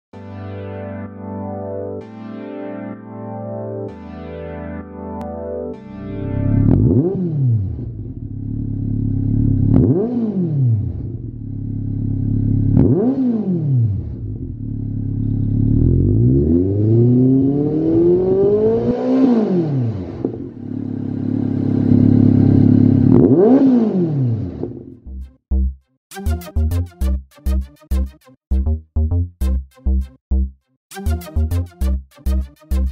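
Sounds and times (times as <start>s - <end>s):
motorcycle engine idling and revving: 6.4s - 25.1s.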